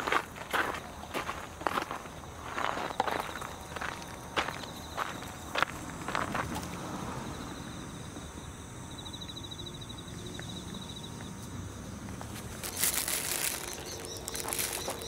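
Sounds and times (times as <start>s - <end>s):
plastic bag crinkling: 12.4s - 15.0s.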